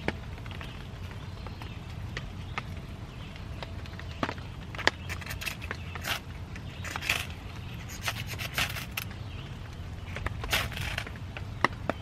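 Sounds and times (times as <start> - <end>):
ferro rod striker scraping: 5.1 - 6.2, 6.8 - 9.2, 10.2 - 11.1.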